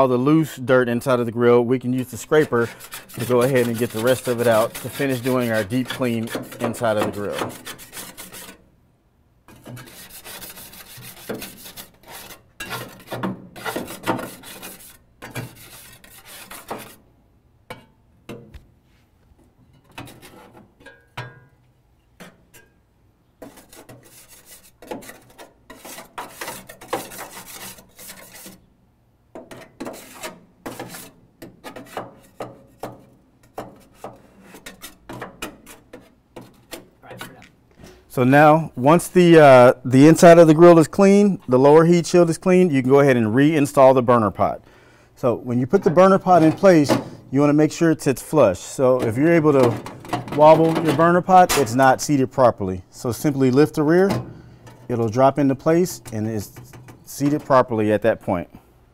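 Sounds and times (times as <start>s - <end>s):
hand scraper rasping on steel: 2.2s - 8.6s, 9.5s - 17.0s, 23.4s - 28.6s, 29.5s - 32.6s, 33.6s - 36.9s.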